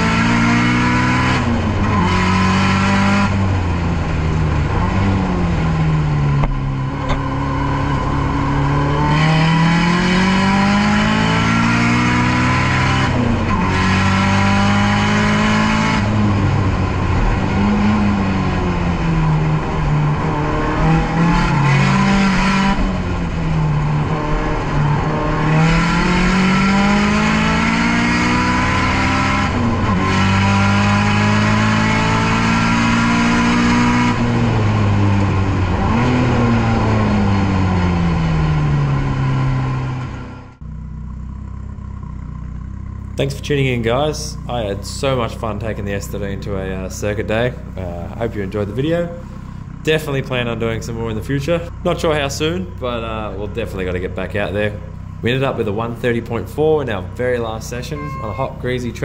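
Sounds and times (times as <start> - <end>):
car engine revving hard: 0.0 - 40.6.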